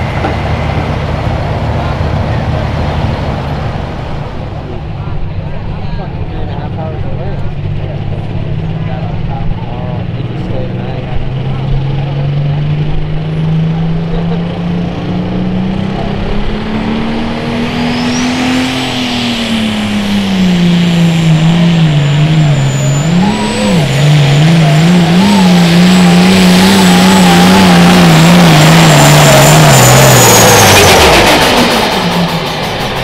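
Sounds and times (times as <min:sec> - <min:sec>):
diesel tractor engine under load: 0:00.0 - 0:33.0
high turbo whistle: 0:17.6 - 0:32.6.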